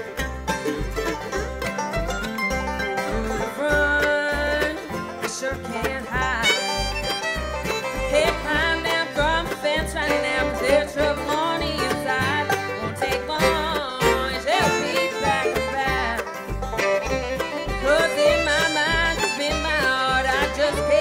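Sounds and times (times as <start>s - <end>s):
acoustic guitars: 0.0s - 21.0s
banjo: 0.0s - 21.0s
fiddle: 0.0s - 21.0s
mandolin: 0.0s - 21.0s
plucked upright bass: 0.0s - 21.0s.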